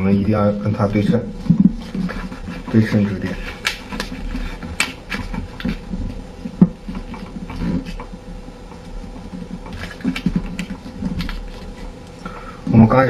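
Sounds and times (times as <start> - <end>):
paper rustling and crinkling: 0.8 - 12.1.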